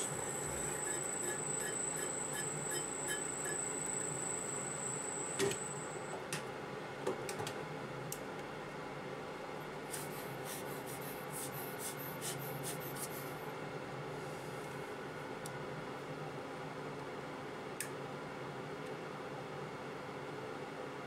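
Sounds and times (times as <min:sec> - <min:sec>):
metal lathe whining: 0:00.0 - 0:06.0.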